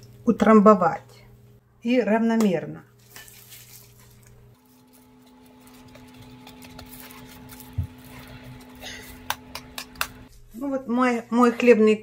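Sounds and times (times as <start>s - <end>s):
steady low hum: 0.0s - 11.4s
breadcrumbs scraping and rustling: 3.0s - 10.3s.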